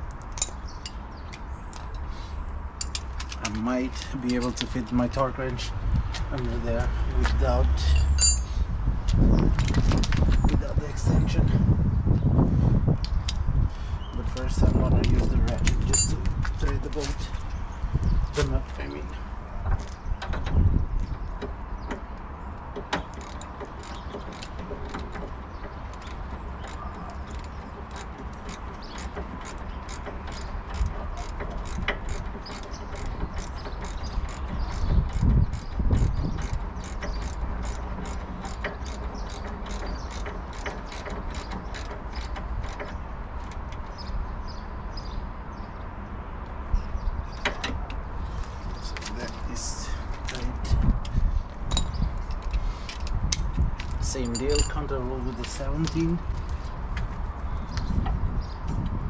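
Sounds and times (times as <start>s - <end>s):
ratchet wrench clicking: 23.0s - 43.8s.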